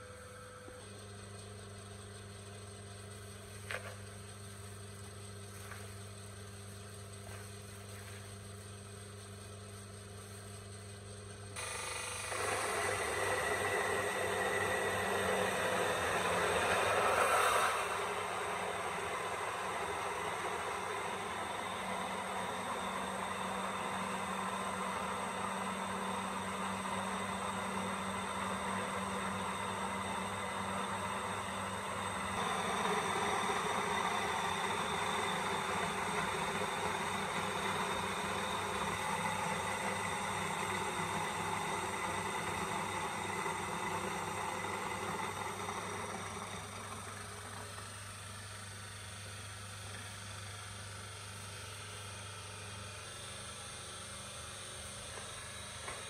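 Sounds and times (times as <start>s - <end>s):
electric motor hum: 11.5s - 56.0s.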